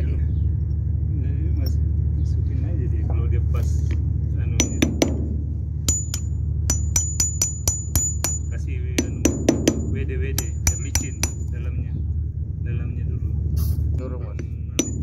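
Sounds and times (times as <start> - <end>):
steady low hum: 0.0 - 15.0
hammer striking metal: 4.6 - 11.6, 14.8 - 15.0.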